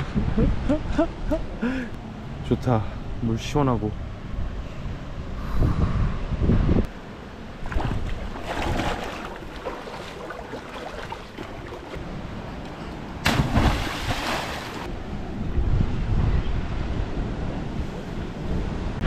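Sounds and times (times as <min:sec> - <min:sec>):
wind on microphone: 0:04.4 - 0:06.9, 0:14.8 - 0:19.0
water sloshing and surf: 0:06.9 - 0:15.7.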